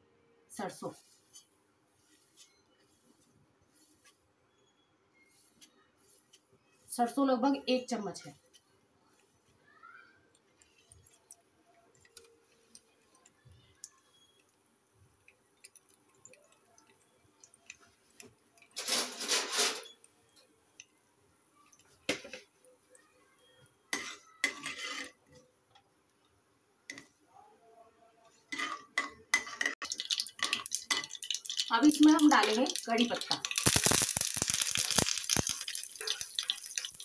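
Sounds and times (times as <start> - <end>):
metal spoon scraping frying pan: 18.7 - 20.0, 23.9 - 25.3, 28.5 - 37.0.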